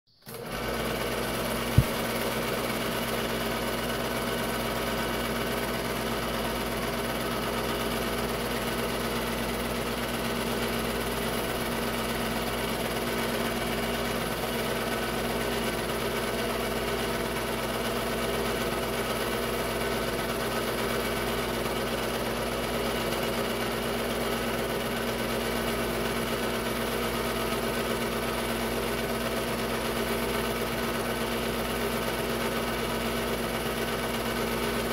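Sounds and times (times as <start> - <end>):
film projector humming and whirring: 0.2 - 34.9
sharp thump: 1.8 - 2.0.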